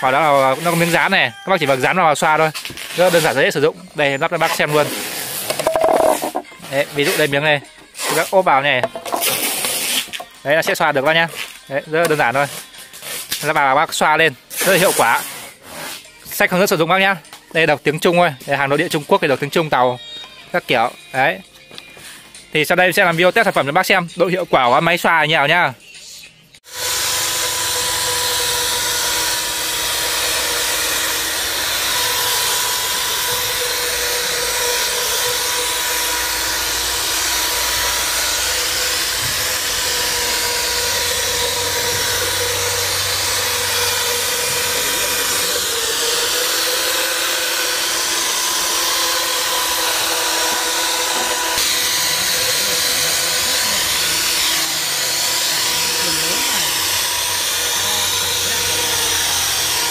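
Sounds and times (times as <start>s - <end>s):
electric plastering float motor whine: 2.6s - 8.3s, 26.6s - 59.9s.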